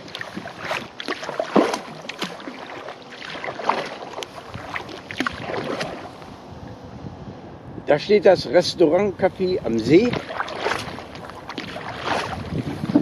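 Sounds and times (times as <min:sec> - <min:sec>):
paddle splashing in water: 0:00.0 - 0:06.3, 0:09.9 - 0:13.0.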